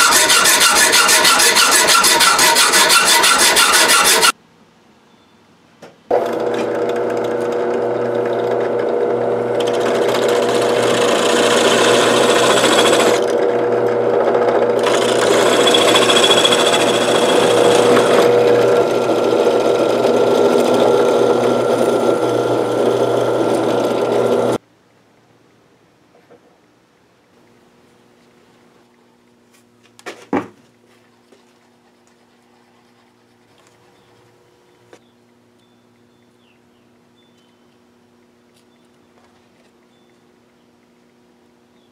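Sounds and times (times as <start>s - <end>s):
drill bit cutting into wood: 0.0s - 4.3s, 6.1s - 24.6s
drill press motor humming: 0.0s - 4.3s, 6.1s - 24.6s.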